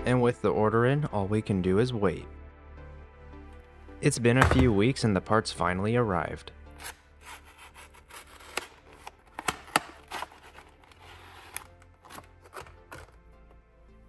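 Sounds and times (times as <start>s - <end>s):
faint background music: 0.0s - 14.0s
packaging rustling: 8.0s - 13.2s.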